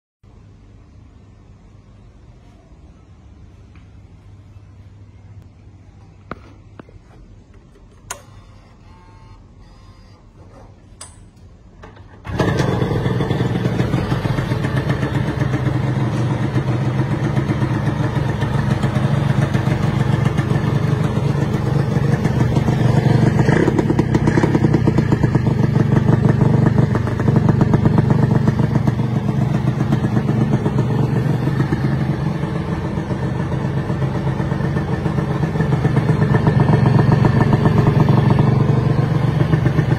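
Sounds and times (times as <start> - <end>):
two-stroke motorcycle engine running: 12.2 - 39.9.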